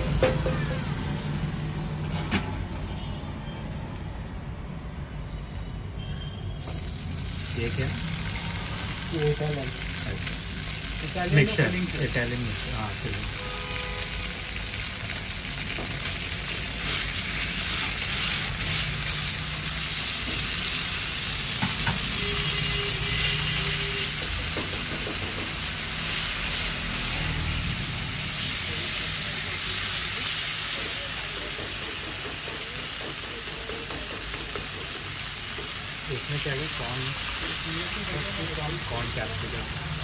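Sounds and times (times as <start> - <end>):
vegetables sizzling in a pan: 0.0 - 5.7, 6.6 - 40.0.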